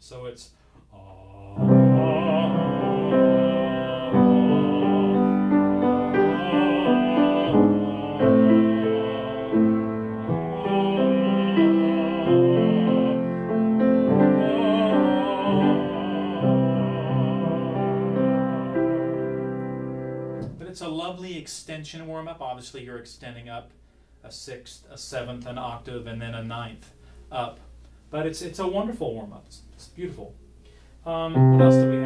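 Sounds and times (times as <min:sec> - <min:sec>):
person singing vocal warm-up: 0:00.8 - 0:20.5, 0:31.0 - 0:32.0
grand piano accompanying: 0:01.3 - 0:20.7, 0:31.2 - 0:32.0.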